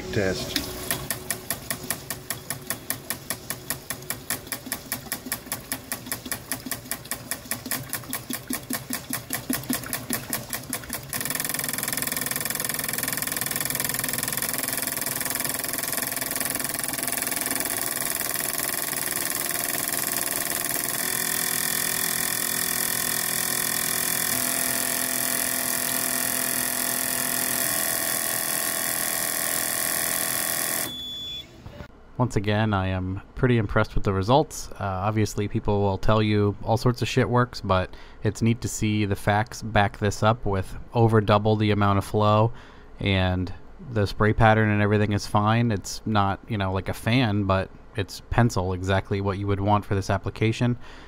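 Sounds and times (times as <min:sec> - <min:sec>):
fuel injectors clicking: 0:00.6 - 0:30.9.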